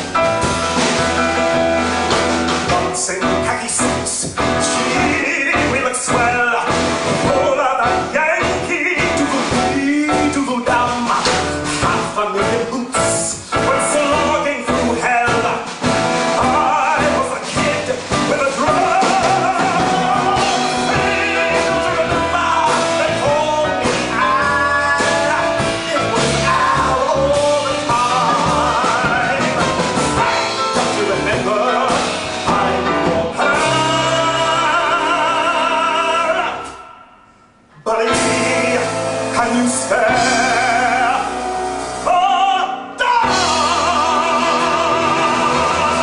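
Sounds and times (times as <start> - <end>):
live band playing: 0.0 - 46.0
man singing into microphone: 2.6 - 36.9, 37.8 - 46.0.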